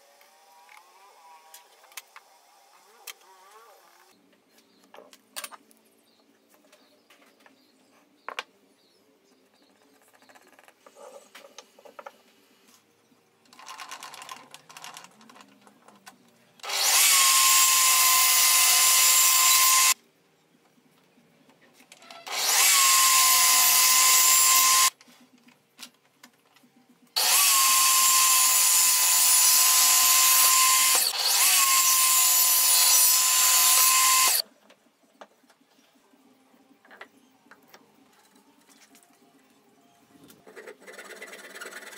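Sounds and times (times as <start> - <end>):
pencil and handling sounds: 9.3 - 12.9, 13.5 - 16.5
table saw cutting wood: 16.6 - 20.0, 22.3 - 24.9, 27.2 - 34.4.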